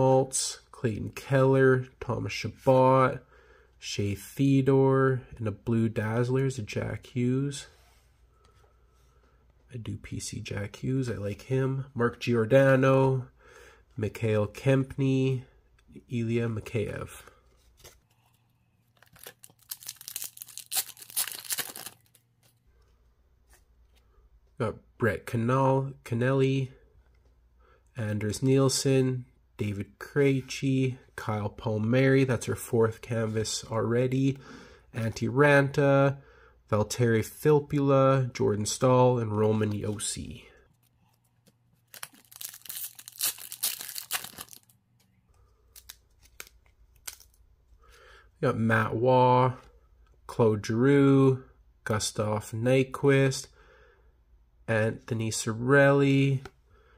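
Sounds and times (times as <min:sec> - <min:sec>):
faint clicks of cards handled: 0:17.5 - 0:19.0
wrapper tearing and crinkling: 0:18.9 - 0:22.3, 0:41.8 - 0:44.8, 0:45.8 - 0:47.4.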